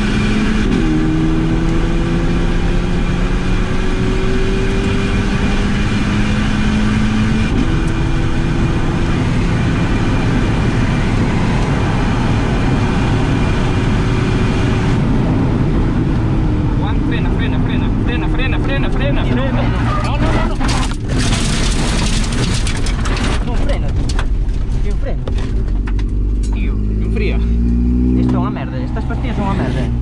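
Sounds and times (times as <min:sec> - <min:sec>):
car engine accelerating: 0:00.0 - 0:30.0
road and wind noise: 0:00.0 - 0:30.0.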